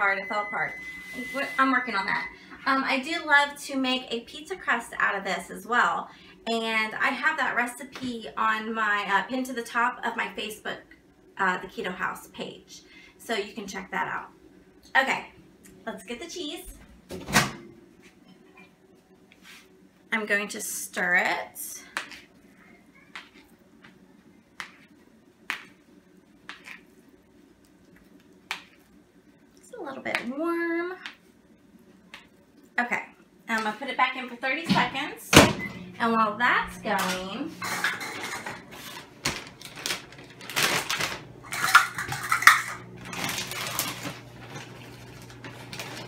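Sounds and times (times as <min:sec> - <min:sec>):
plastic bag crinkling: 0:37.0 - 0:46.0.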